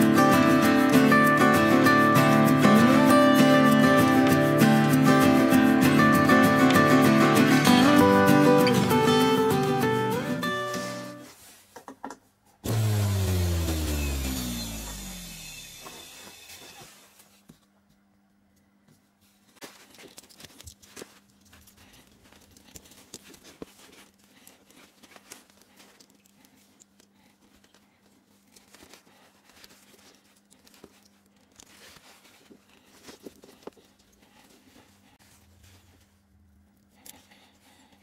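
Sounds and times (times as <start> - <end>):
fingers rustling and clicking connector: 19.7 - 34.2.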